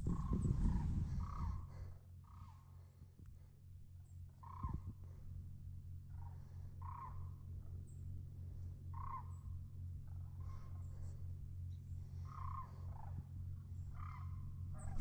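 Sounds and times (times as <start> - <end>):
harsh crow-like calls: 0.0 - 2.8, 4.4 - 5.1, 6.1 - 7.5, 8.8 - 11.2, 12.1 - 15.0
steady low hum: 0.0 - 15.0
faint high bird chirps: 4.0 - 4.9, 6.1 - 8.1, 8.9 - 15.0.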